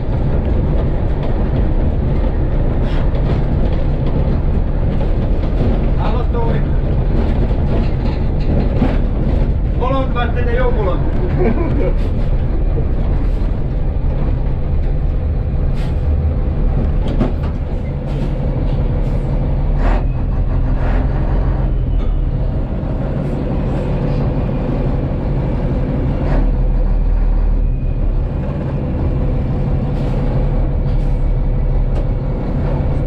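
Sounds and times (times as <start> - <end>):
diesel engine deep rumble: 0.0 - 33.0
sharp clicks and knocks: 0.1 - 9.8.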